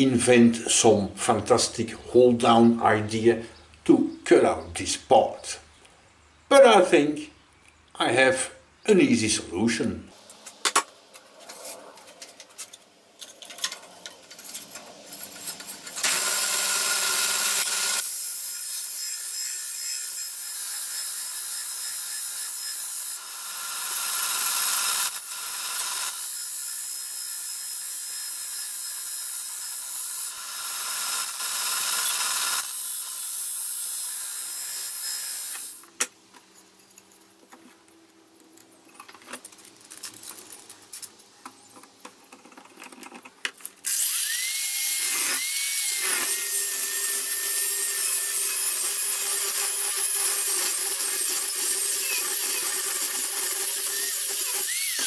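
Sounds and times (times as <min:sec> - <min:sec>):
belt grinder grinding steel: 0:12.4 - 0:35.8, 0:43.8 - 0:55.0
angle grinder cutting steel: 0:13.6 - 0:35.8, 0:43.8 - 0:55.0.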